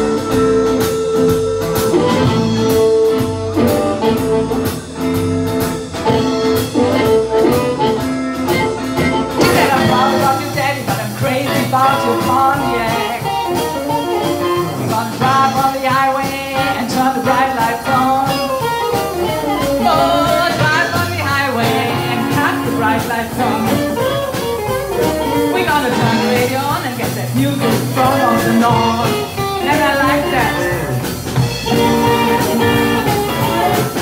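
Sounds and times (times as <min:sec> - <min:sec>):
amplified harmonica wailing: 0:00.0 - 0:16.0, 0:16.6 - 0:34.0
blues band playing: 0:00.0 - 0:34.0.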